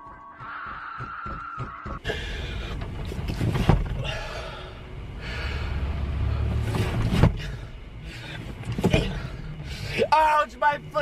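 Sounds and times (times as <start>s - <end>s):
man breathing heavily: 1.9s - 10.1s.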